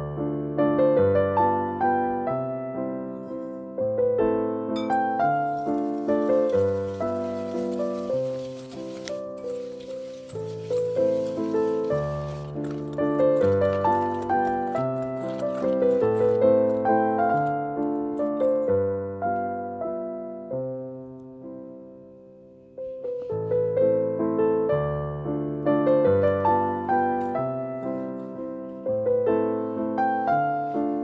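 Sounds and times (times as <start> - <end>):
gentle piano melody: 0.0 - 31.0.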